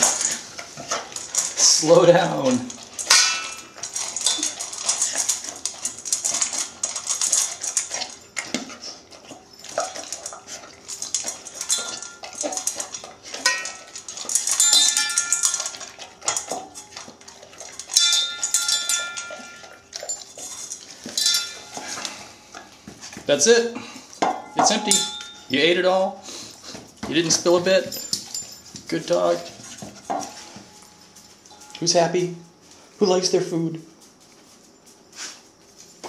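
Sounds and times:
metal bowl clinking: 0.0s - 8.2s, 9.5s - 22.2s, 24.2s - 25.8s, 27.1s - 32.3s
kibble rattling against metal bowl: 0.0s - 23.6s, 24.4s - 26.1s, 26.8s - 32.3s
puppy eating dry kibble: 0.0s - 36.0s.

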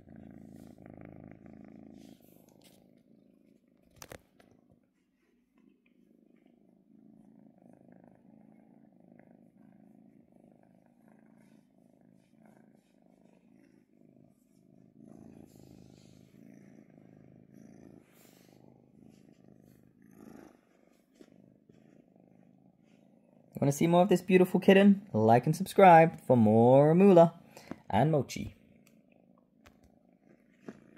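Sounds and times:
kitten purring: 0.0s - 30.9s
hand rustling on fur: 18.1s - 23.3s.

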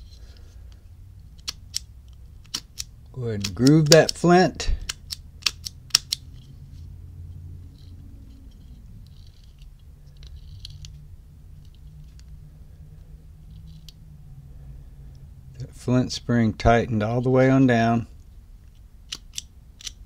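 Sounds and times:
faint scraping and ticking: 6.4s - 14.0s.

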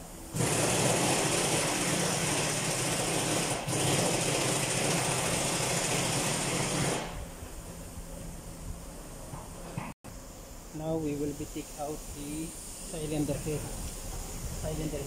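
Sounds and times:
machine whirring loudly: 0.3s - 7.2s.

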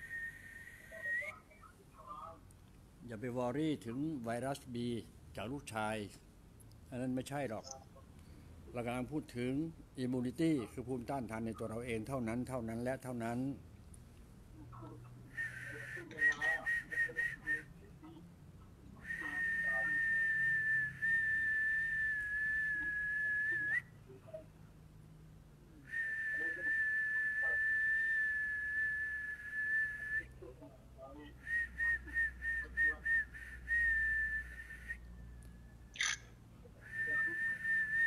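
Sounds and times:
person whistling high note: 15.4s - 17.7s, 19.0s - 23.8s, 25.9s - 30.3s.

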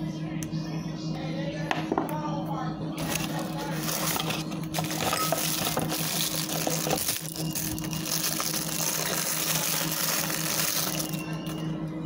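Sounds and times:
low steady hum: 0.0s - 12.0s
plastic bag crinkling: 3.0s - 11.6s.

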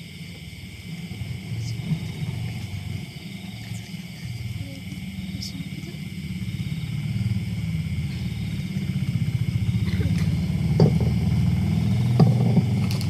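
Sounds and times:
low rumble: 0.0s - 13.0s
faint knocks: 10.0s - 11.4s.

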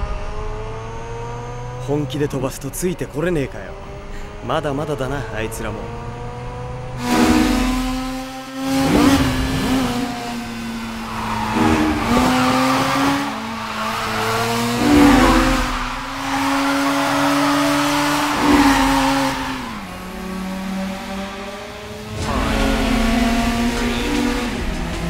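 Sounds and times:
car engine revving hard: 5.8s - 25.0s
tyres squealing: 10.8s - 20.1s.

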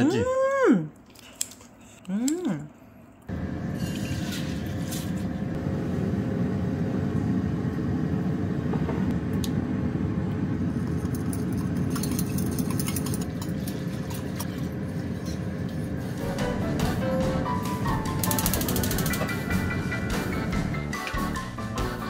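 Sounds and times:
fan motor rumbling: 2.6s - 22.0s
light clinks and clicks: 10.8s - 13.8s.

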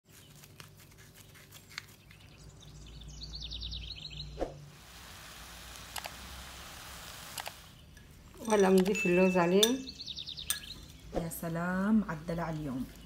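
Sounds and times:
bird chirping: 0.1s - 4.7s, 7.6s - 13.0s.

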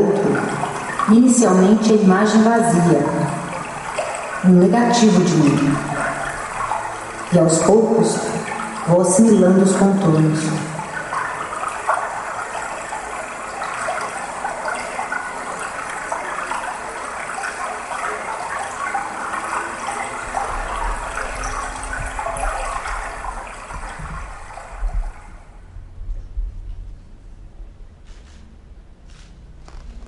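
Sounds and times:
rushing water: 0.0s - 25.7s
low rumble: 20.6s - 30.0s.

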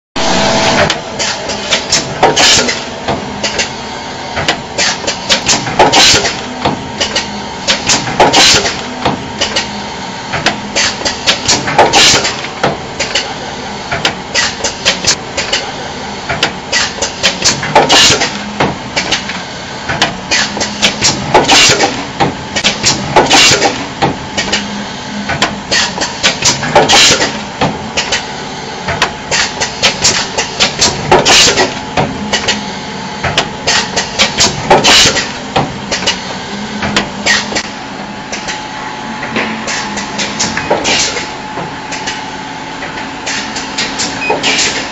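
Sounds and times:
machine humming: 0.2s - 44.9s
machine clicking and clacking: 4.4s - 9.7s, 10.3s - 13.3s, 14.0s - 15.7s, 16.3s - 24.7s, 25.3s - 28.3s, 28.9s - 32.6s, 33.2s - 37.7s, 39.2s - 42.2s, 42.8s - 44.9s.

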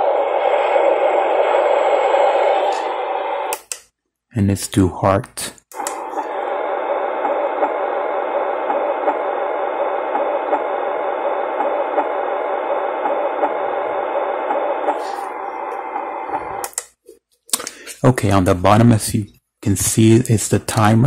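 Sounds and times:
heartbeat sound from small speaker: 6.2s - 16.6s.

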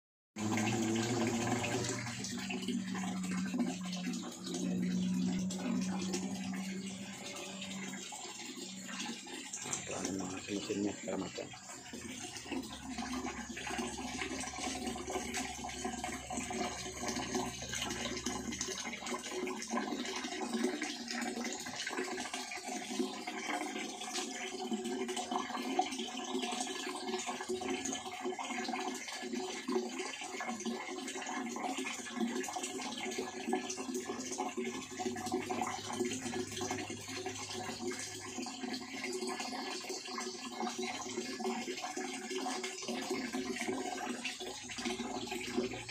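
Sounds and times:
running water rushing: 0.4s - 45.9s
low hum: 0.5s - 18.6s.

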